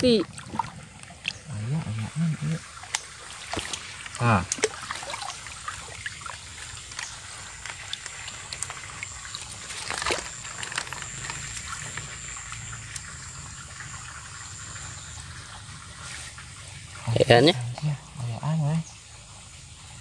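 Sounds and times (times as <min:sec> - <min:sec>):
hand sloshing in muddy water: 0:00.2 - 0:01.5, 0:02.5 - 0:10.6
dry straw crackling: 0:04.8 - 0:12.1.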